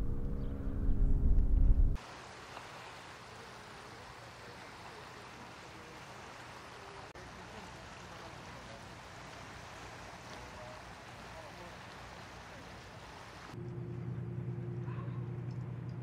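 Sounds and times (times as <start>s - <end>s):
water lapping along shore: 2.0s - 13.6s
faint distant voices: 2.8s - 13.6s
loud low engine-like hum: 13.6s - 16.0s.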